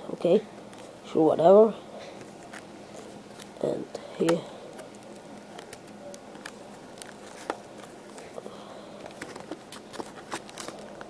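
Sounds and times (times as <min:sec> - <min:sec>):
plastic packaging crinkling: 0:09.0 - 0:11.0.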